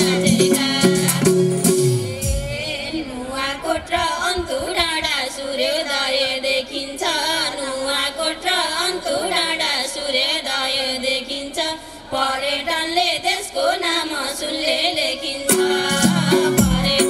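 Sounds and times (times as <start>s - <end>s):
woman singing unaccompanied: 0.0s - 17.0s.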